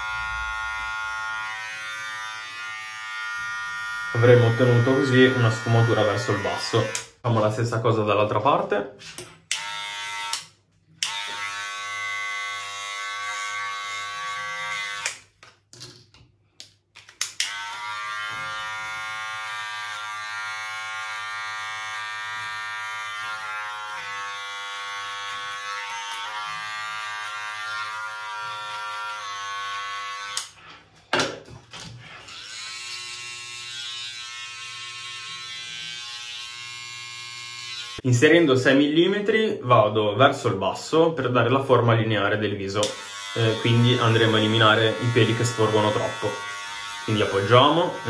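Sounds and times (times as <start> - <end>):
electric hair clippers buzzing: 0.0 - 7.2, 9.5 - 15.3, 17.3 - 30.6, 32.1 - 38.0, 42.8 - 48.0.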